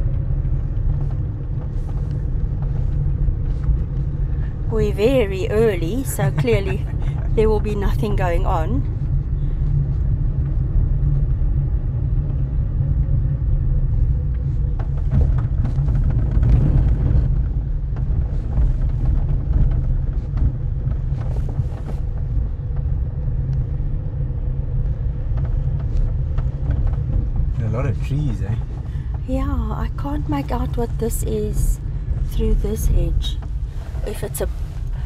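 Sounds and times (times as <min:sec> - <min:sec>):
faint steady hum: 0:00.0 - 0:16.6
car engine and tyres rumbling: 0:00.0 - 0:35.0.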